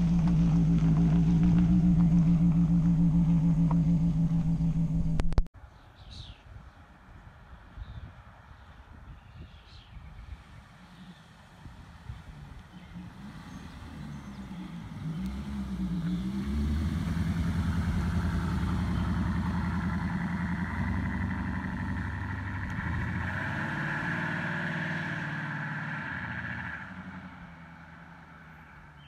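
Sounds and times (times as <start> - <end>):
car engine driving past: 0.0 - 5.3, 10.9 - 28.6.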